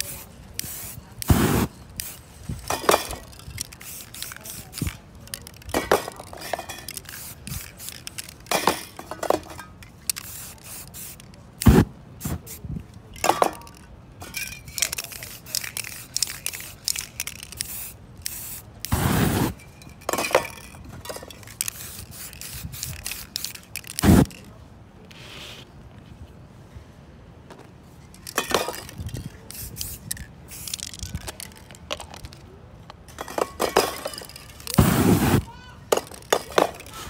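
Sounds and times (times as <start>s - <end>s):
aerosol spray can hissing: 0.0s - 2.2s, 3.6s - 4.9s, 7.0s - 8.2s, 10.1s - 12.6s, 17.5s - 19.6s, 21.6s - 24.3s, 34.8s - 35.4s.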